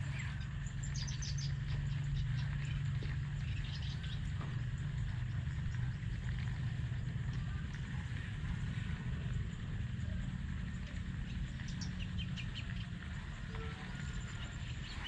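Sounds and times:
low hum: 0.0s - 15.0s
bird chirps: 0.1s - 4.3s, 11.2s - 13.0s.

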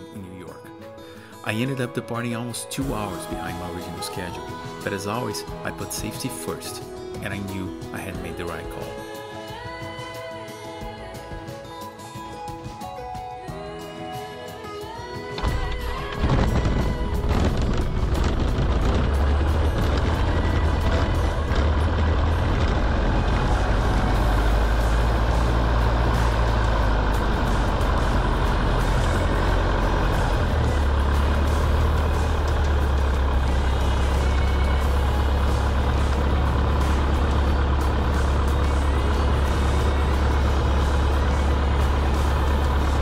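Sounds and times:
piston aircraft engine idling: 15.3s - 43.0s.

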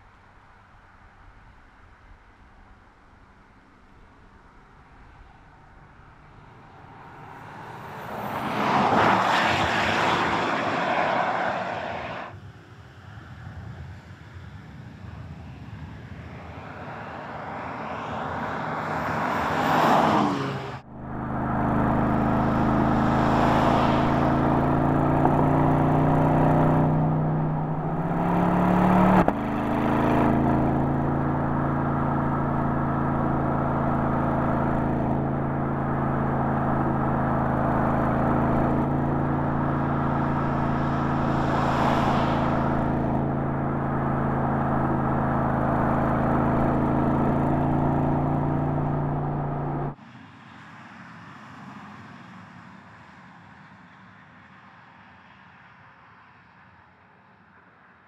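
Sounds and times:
car engine passing by: 6.3s - 12.4s, 15.5s - 50.0s.

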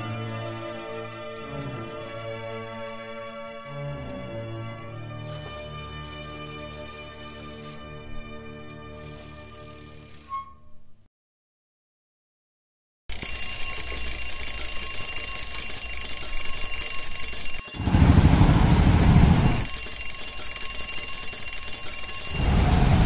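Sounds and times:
electronic ringing tone: 5.2s - 7.8s, 13.1s - 22.7s
loud low rushes: 17.8s - 19.6s, 22.4s - 23.0s.

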